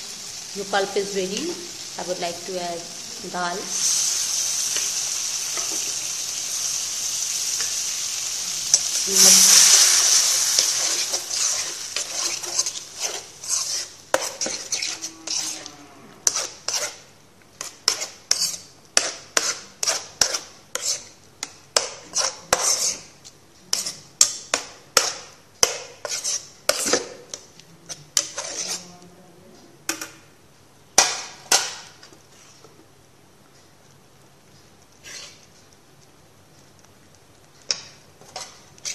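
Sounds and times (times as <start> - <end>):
frying sizzle: 0.0 - 17.0
metal spoon scraping a pan: 3.4 - 17.0, 17.6 - 29.0, 35.0 - 35.5, 37.7 - 38.9.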